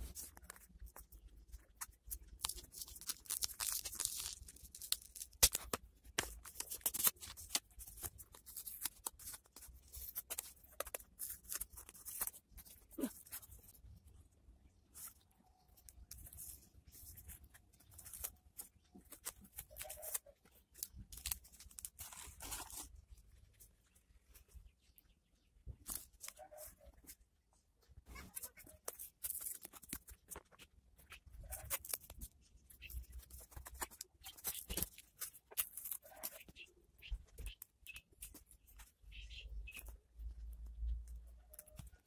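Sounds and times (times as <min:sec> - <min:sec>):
plastic crinkling and rustling: 0:15.0 - 0:24.6
tape tearing: 0:19.0 - 0:22.9.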